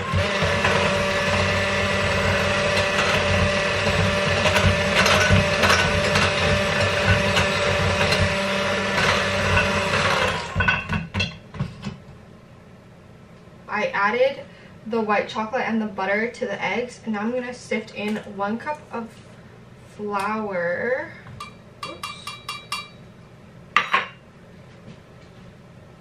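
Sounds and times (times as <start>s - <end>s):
electric hand mixer whirring: 0.0s - 10.7s.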